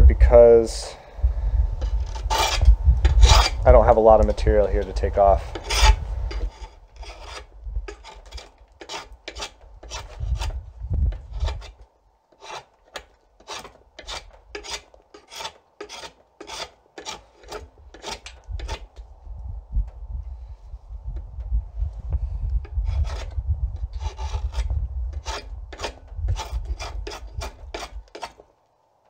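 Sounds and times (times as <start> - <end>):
draw knife shaving wood: 1.8 - 3.6, 4.8 - 10.6, 11.2 - 11.8, 12.4 - 18.9, 22.7 - 23.3, 23.9 - 28.4.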